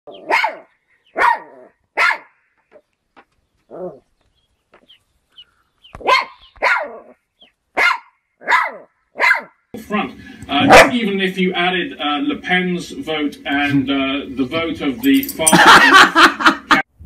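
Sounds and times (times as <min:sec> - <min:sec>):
small dog barking: 0:00.1 - 0:02.4, 0:06.0 - 0:07.2, 0:07.8 - 0:09.6, 0:10.7 - 0:11.0.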